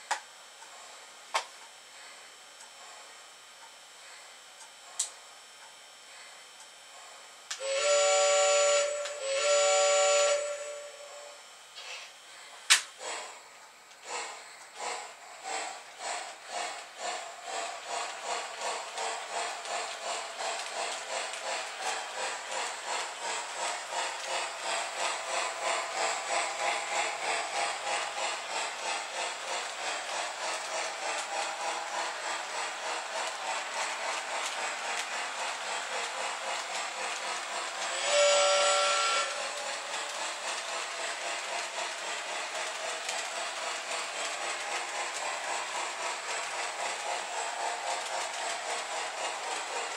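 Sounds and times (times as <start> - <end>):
steam locomotive chuffing: 6.0 - 49.9
steam whistle blasts: 7.6 - 11.4, 37.9 - 39.6.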